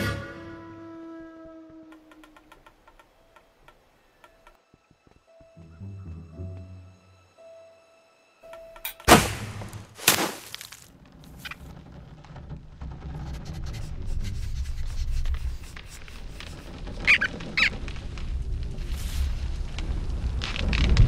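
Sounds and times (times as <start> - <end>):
short high squeaks: 16.3 - 17.8.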